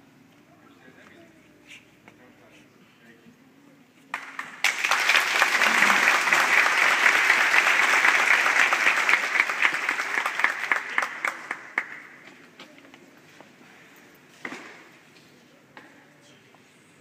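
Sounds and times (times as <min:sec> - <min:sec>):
audience applauding: 0:04.1 - 0:12.2.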